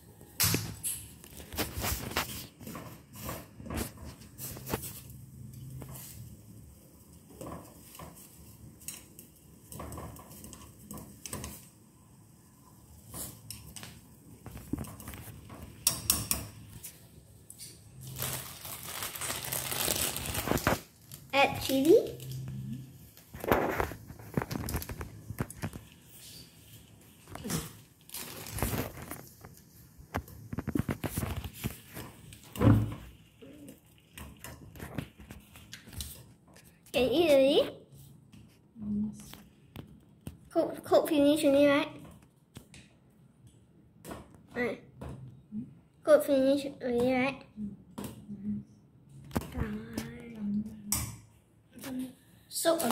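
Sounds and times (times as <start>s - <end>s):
plastic packet crinkling: 18.0s - 22.4s, 23.3s - 26.0s, 28.0s - 29.6s.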